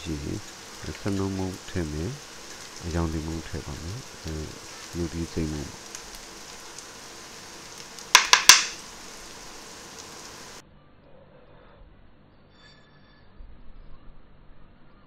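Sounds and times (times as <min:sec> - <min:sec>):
onion sizzling in hot oil: 0:00.0 - 0:10.6.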